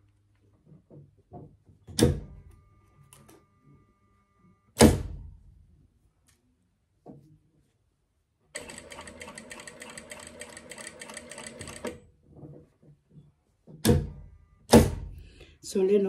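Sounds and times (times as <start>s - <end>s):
sewing machine clattering: 8.6s - 12.0s.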